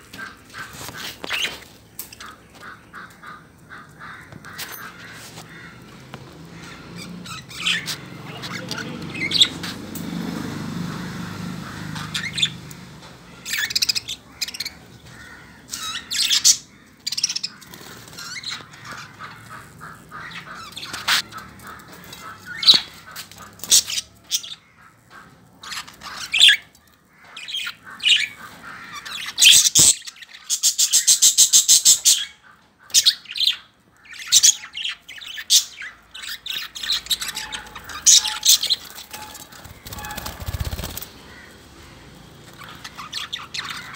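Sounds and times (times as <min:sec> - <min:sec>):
budgerigars chirping and chattering: 0:00.1 - 0:05.8, 0:06.6 - 0:43.9
fast rattling bird call: 0:36.9 - 0:41.6.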